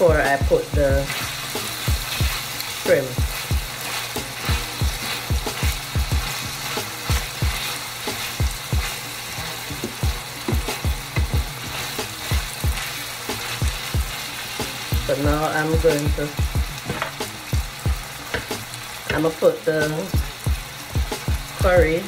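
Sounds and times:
vegetables sizzling in oil: 0:00.0 - 0:22.0
wooden spatula scraping pan: 0:00.8 - 0:15.5.

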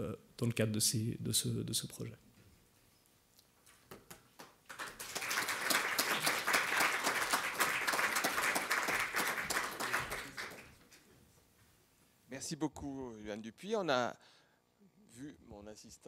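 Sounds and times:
audience applauding: 0:04.4 - 0:10.8.

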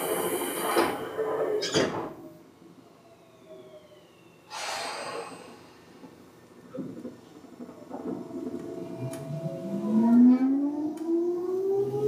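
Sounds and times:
short air hiss: 0:04.5 - 0:05.6
train car rumble and knocks: 0:05.2 - 0:11.0.

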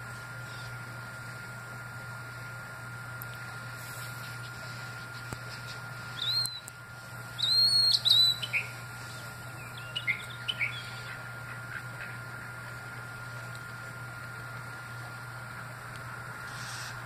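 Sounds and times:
steady low hum: 0:00.0 - 0:17.0
bird whistled calls: 0:06.2 - 0:06.7, 0:07.4 - 0:08.8, 0:09.6 - 0:11.2.

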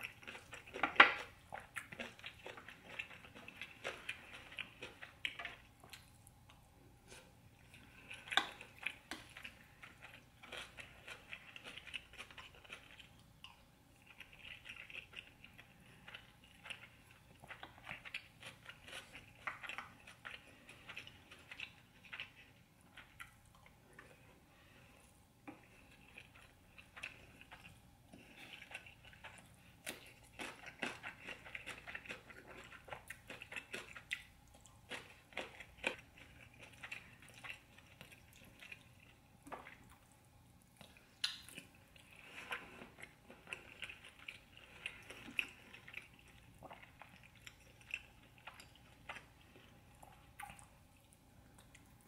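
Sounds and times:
wet chewing: 0:00.0 - 0:52.0
lip smacks: 0:40.8 - 0:41.7.

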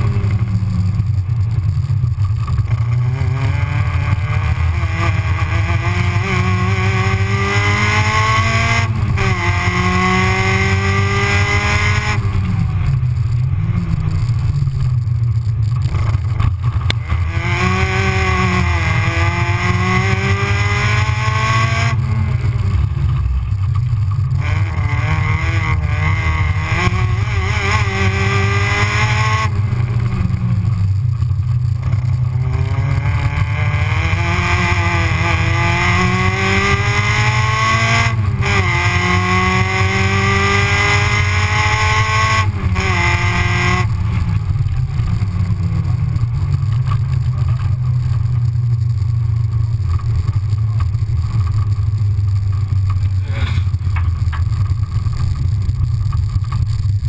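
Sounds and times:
heavy low rumble: 0:00.0 - 0:28.6, 0:42.4 - 0:57.0
car engine accelerating: 0:00.0 - 0:57.0.

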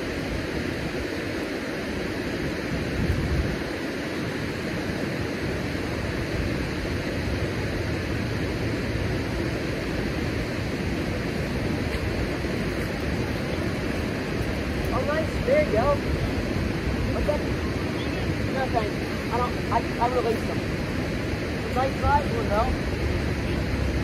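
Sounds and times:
water rushing over rocks: 0:00.0 - 0:24.0.

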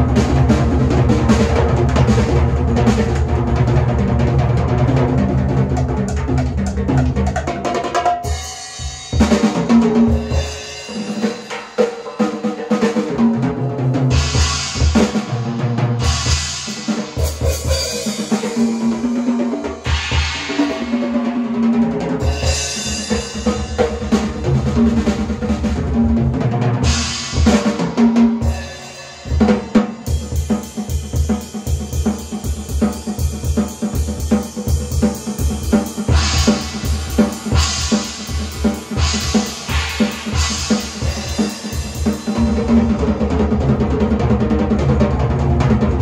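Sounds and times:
drum kit played hard: 0:00.0 - 0:46.0
cymbal crashes: 0:19.8 - 0:21.3, 0:36.1 - 0:42.8.

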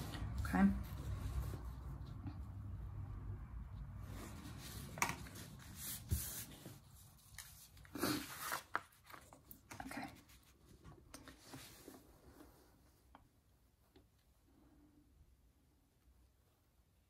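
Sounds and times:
paper rustling: 0:04.1 - 0:12.1.

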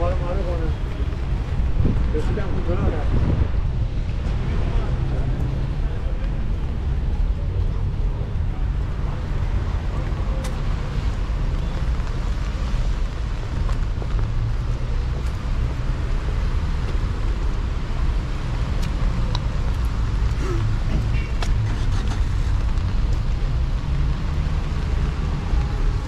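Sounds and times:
low street rumble: 0:00.0 - 0:26.0.

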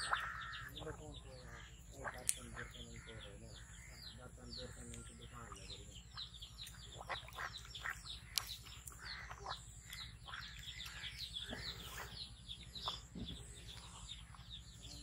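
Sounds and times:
duck calls: 0:00.0 - 0:12.2
birds chirping: 0:00.0 - 0:15.0.

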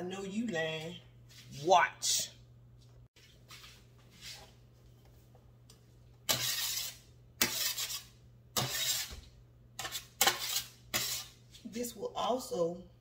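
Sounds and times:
utensil scraping on metal pan: 0:06.3 - 0:09.2, 0:09.8 - 0:11.4.

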